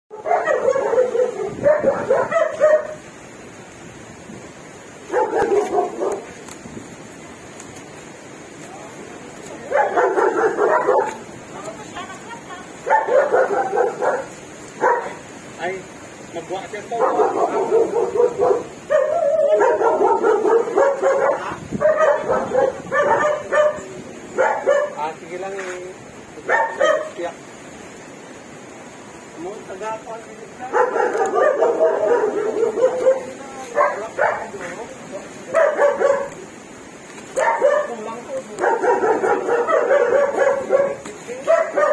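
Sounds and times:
dog whining and howling: 0:17.4 - 0:23.8, 0:31.0 - 0:33.3.

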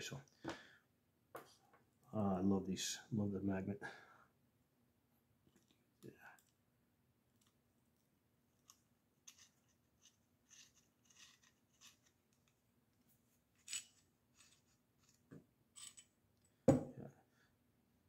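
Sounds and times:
small screws clicking and scraping: 0:08.6 - 0:12.6, 0:13.5 - 0:16.5.

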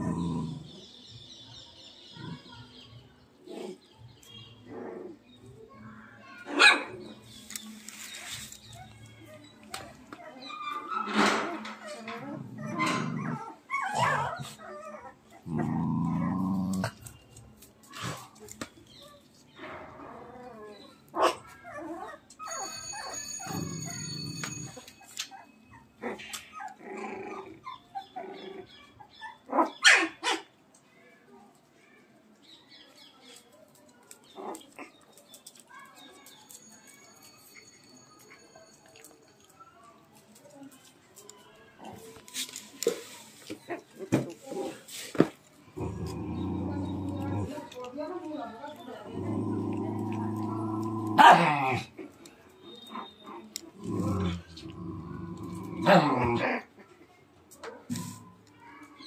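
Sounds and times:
puppies growling and yipping: 0:03.4 - 0:03.9, 0:04.6 - 0:05.5, 0:10.4 - 0:17.2, 0:19.9 - 0:30.2, 0:45.6 - 0:47.8, 0:48.9 - 0:52.2, 0:52.9 - 0:56.8
dog barking: 0:06.5 - 0:07.0, 0:21.2 - 0:21.5, 0:51.2 - 0:51.6
puppy yelps: 0:12.7 - 0:15.1, 0:29.0 - 0:30.4.

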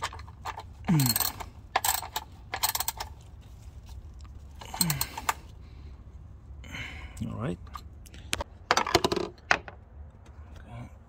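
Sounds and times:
ratchet wrench clicking: 0:01.0 - 0:03.1.

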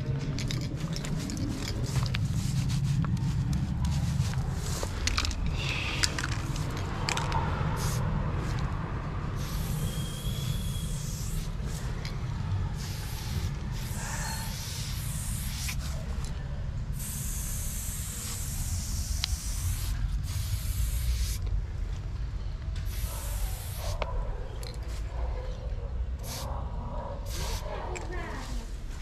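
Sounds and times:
steady low rumble: 0:00.0 - 0:29.0
spray paint hissing: 0:00.3 - 0:08.7, 0:09.3 - 0:21.5, 0:22.8 - 0:24.1, 0:26.2 - 0:26.5, 0:27.2 - 0:28.6.

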